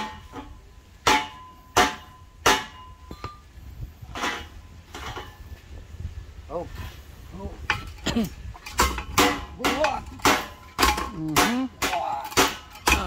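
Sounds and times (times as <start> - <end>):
hammer striking metal pipe: 0.0 - 3.4, 8.7 - 13.0.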